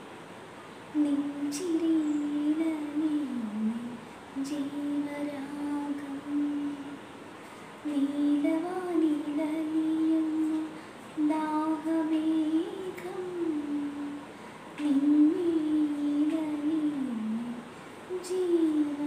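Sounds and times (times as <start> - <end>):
woman humming: 11.4 - 19.0.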